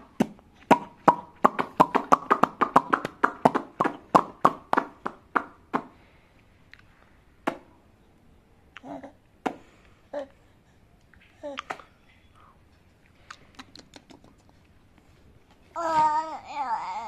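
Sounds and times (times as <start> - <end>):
toddler's mouth smacking wetly: 13.1 - 14.7.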